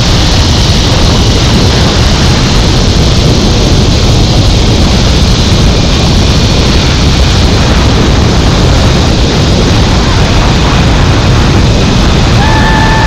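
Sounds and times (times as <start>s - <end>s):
wind rushing over microphone: 0.0s - 13.0s.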